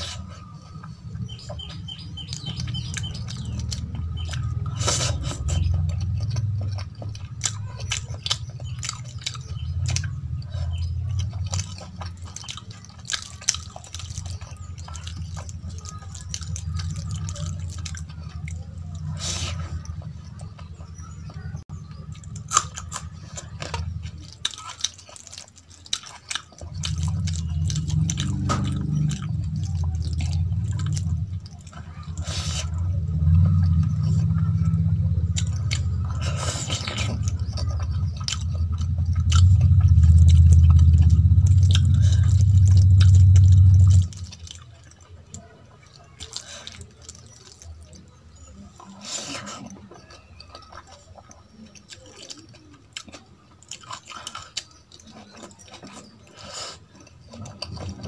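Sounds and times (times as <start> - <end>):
chewing: 0.0 - 58.0
deep low rumble: 26.6 - 44.5.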